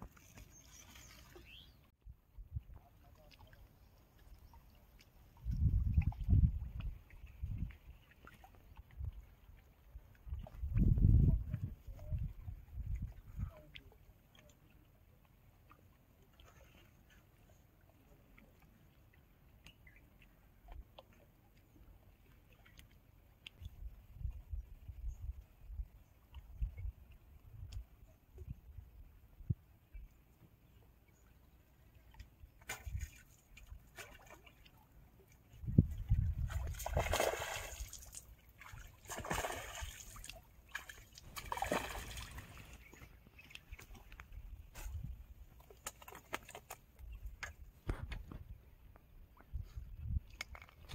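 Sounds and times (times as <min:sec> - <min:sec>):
fish splashing in water: 0:36.3 - 0:43.1.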